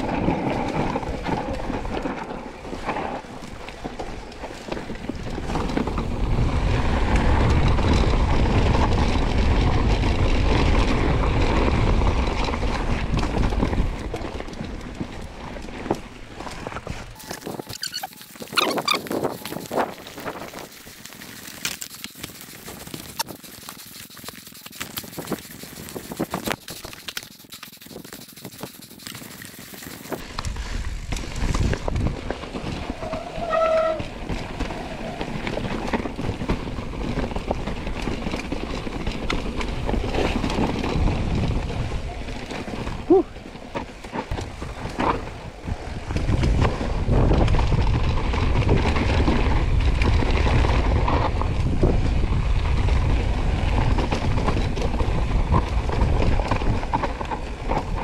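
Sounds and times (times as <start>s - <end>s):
bike clicks and rattles: 0.0s - 58.0s
wind on microphone: 0.0s - 58.0s
tyres rumbling over ground: 28.1s - 58.0s.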